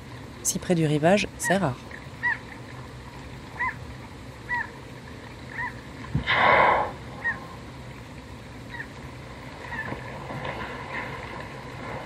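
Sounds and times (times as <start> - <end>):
bird calling: 2.2 - 2.4, 3.6 - 3.8, 4.5 - 4.8, 5.5 - 7.6
whale blowing: 5.6 - 7.7.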